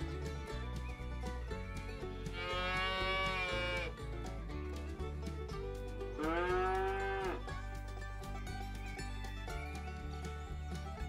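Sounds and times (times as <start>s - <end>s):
background music: 0.0s - 11.0s
cow mooing: 6.2s - 7.4s.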